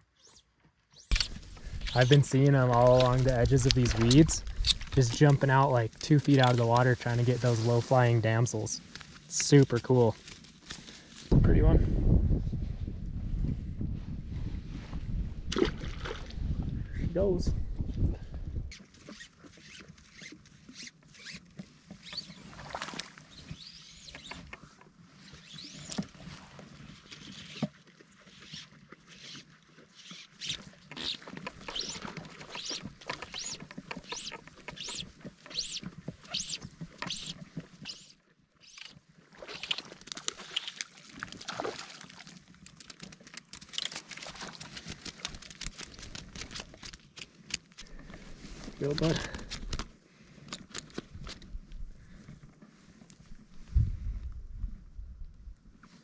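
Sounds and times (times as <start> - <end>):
fly line zipping: 0.0 - 2.3, 30.0 - 40.8
clicks and rustling: 1.0 - 7.4, 30.4 - 38.0, 42.4 - 48.0.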